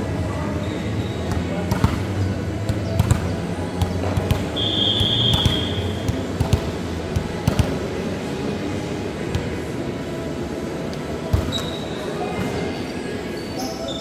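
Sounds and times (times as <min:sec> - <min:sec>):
ball bouncing on hard court: 0:01.3 - 0:07.8
referee's whistle blast: 0:04.5 - 0:06.0.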